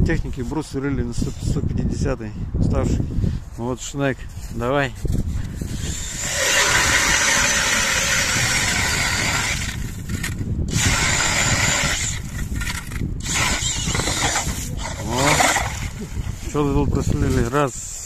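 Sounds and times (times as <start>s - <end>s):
drill motor whining: 5.7s - 16.3s
auger grinding into ice: 5.7s - 16.6s.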